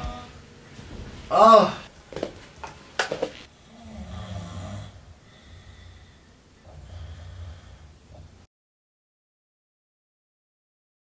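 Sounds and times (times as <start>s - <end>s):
person snoring: 3.6s - 8.0s.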